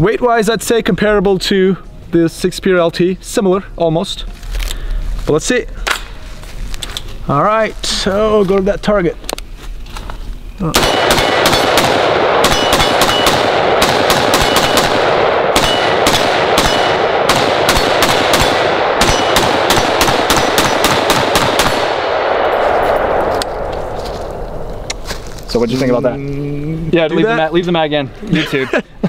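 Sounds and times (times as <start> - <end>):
rapid rifle shots echoing: 10.8 - 23.3.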